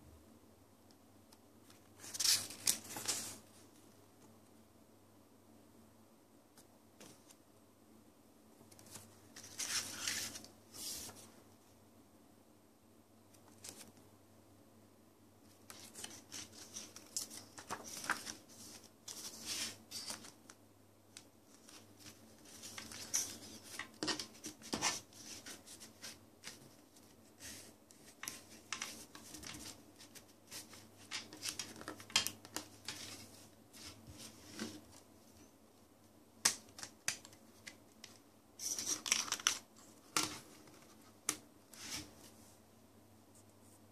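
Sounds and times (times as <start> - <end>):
paper booklet rustling: 1.8 - 3.5, 8.7 - 11.3, 15.5 - 35.1.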